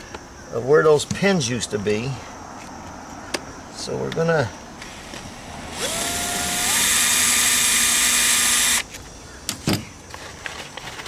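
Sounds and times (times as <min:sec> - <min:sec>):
drill grinding into masonry: 0:04.8 - 0:08.9.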